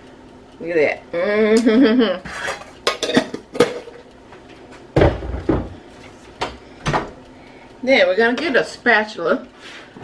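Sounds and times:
utensil scraping a steel pot: 0:02.2 - 0:03.4
heavy thud: 0:05.0 - 0:05.8.

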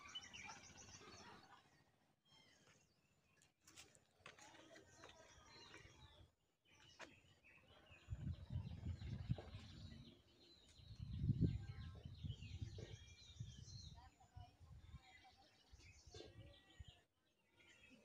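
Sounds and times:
small birds chirping: 0:00.0 - 0:18.0
low rumble on microphone: 0:08.0 - 0:10.2.

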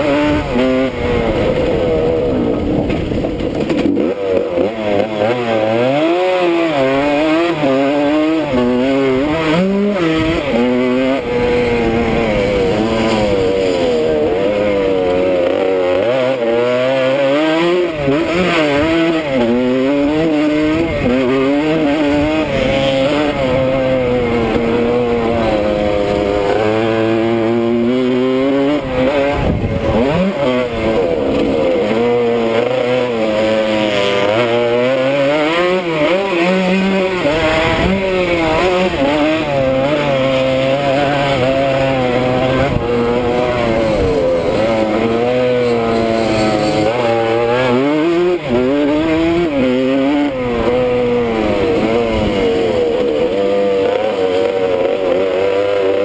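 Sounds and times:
wind rushing over microphone: 0:00.0 - 0:04.1, 0:09.1 - 0:15.2, 0:28.7 - 0:31.8, 0:37.1 - 0:47.1
motorcycle engine revving: 0:00.0 - 0:56.0.

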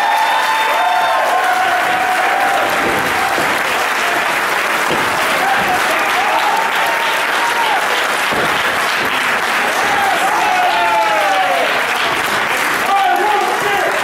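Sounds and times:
crowd applauding: 0:00.0 - 0:14.0.

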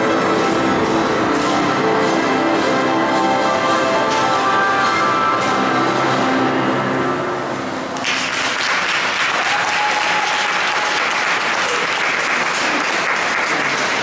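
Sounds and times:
program music: 0:00.0 - 0:08.0
audience applauding: 0:08.0 - 0:14.0.

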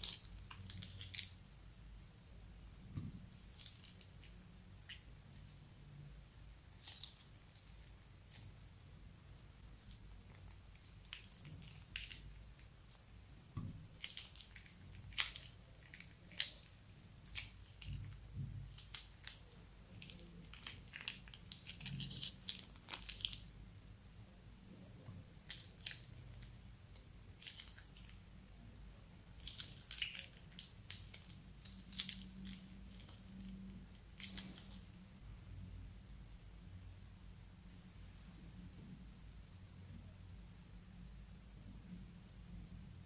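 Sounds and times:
slime crackling: 0:00.0 - 0:01.5, 0:03.0 - 0:05.7, 0:06.7 - 0:08.8, 0:09.8 - 0:13.0, 0:13.6 - 0:23.6, 0:25.3 - 0:28.4, 0:29.2 - 0:35.0
slime squelching: 0:00.0 - 0:01.5, 0:02.8 - 0:05.9, 0:06.6 - 0:08.8, 0:09.7 - 0:23.6, 0:25.0 - 0:28.6, 0:29.2 - 0:35.0.

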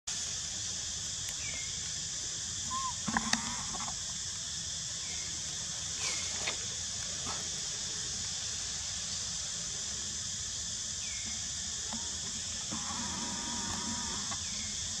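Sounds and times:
steady high hiss: 0:00.1 - 0:15.0
high chirping animal calls: 0:02.7 - 0:03.2
clucking calls and clicks: 0:02.7 - 0:04.2.

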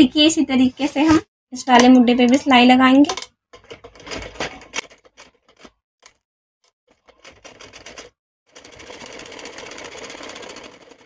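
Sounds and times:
sewing machine stitching: 0:06.9 - 0:11.0.

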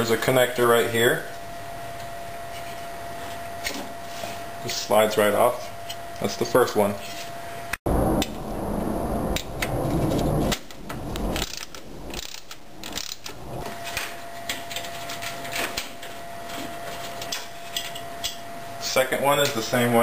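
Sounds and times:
rubbing and handling noise: 0:09.9 - 0:18.0.

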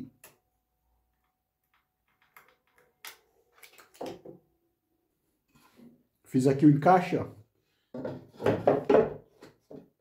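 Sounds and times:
wooden board and tools clicking: 0:01.2 - 0:04.4.

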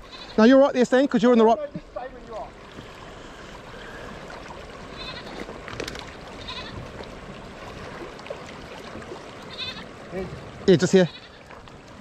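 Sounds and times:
flowing water rushing: 0:00.0 - 0:12.0
quavering animal calls: 0:04.9 - 0:05.4, 0:09.5 - 0:09.9.

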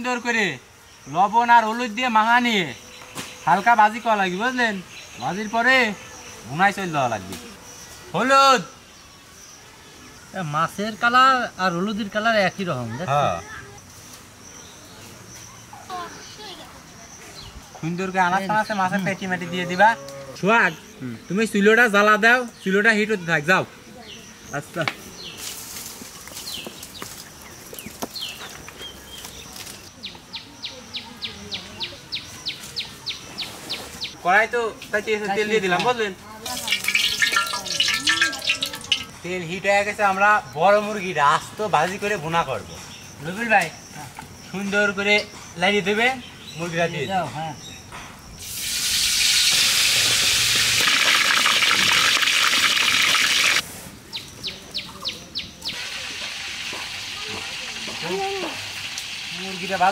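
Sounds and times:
bird chirping: 0:00.0 - 0:34.2, 0:36.5 - 0:39.4, 0:40.4 - 0:48.4, 0:54.0 - 0:55.8
insect hiss: 0:00.0 - 0:59.9
chicken sizzling in hot oil: 0:36.4 - 0:39.2, 0:48.4 - 0:53.6, 0:55.8 - 0:59.9.

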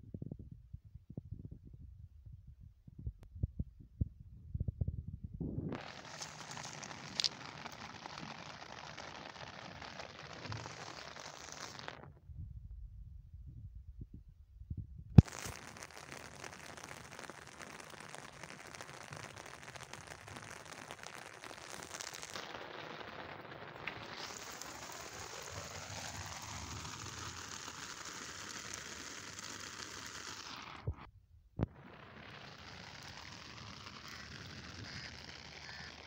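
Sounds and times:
rain falling: 0:05.8 - 0:11.8, 0:15.2 - 0:30.8, 0:32.0 - 0:36.0.

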